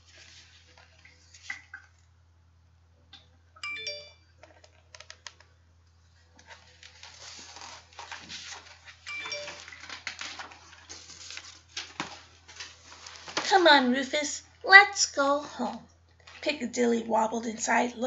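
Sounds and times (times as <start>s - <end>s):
paper rustling: 0.0s - 1.5s, 6.2s - 13.7s
high ringing tone: 3.6s - 4.4s, 9.0s - 9.8s.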